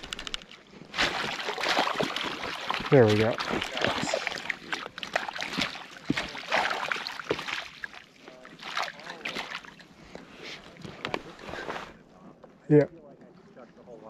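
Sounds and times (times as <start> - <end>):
water splashing and dripping: 0.0 - 9.8.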